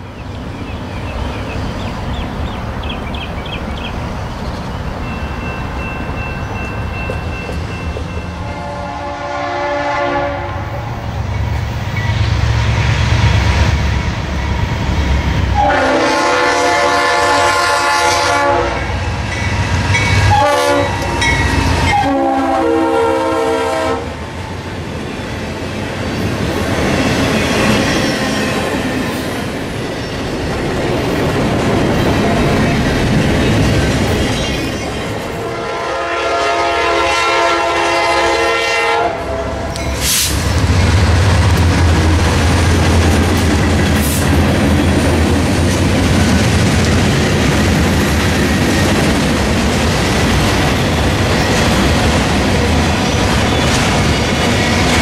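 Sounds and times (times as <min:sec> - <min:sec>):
train wheels clacking: 0:05.0 - 0:08.7, 0:39.7 - 0:55.0
locomotive horn: 0:08.4 - 0:10.9, 0:15.5 - 0:19.0, 0:20.2 - 0:24.2, 0:35.4 - 0:40.3
locomotive engine rumble: 0:39.2 - 0:55.0.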